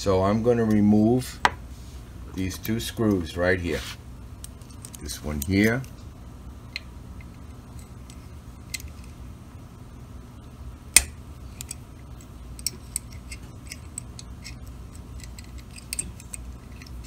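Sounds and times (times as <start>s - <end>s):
steady low hum: 0.0s - 17.0s
screwdriver clicking on metal screws: 11.0s - 17.0s.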